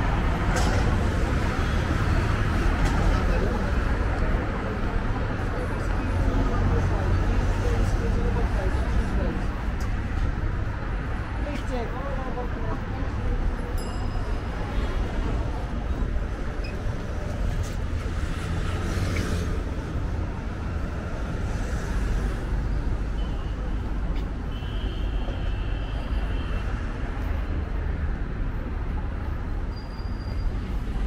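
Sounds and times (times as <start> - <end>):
road traffic rumble: 0.0 - 31.0.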